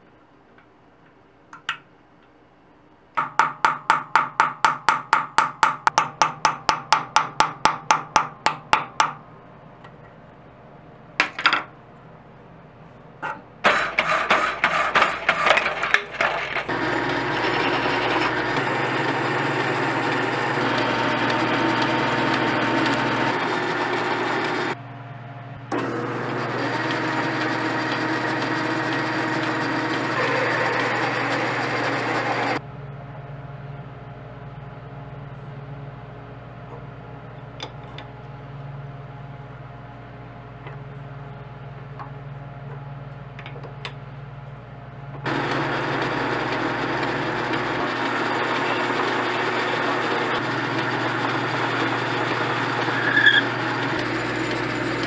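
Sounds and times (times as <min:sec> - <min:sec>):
saw cutting steel tube: 0:13.6 - 0:24.8, 0:25.7 - 0:32.6, 0:45.3 - 0:55.0
machine running: 0:13.6 - 0:32.8, 0:45.2 - 0:55.0
lathe drilling metal: 0:13.7 - 0:24.8, 0:25.7 - 0:32.6, 0:45.3 - 0:55.0.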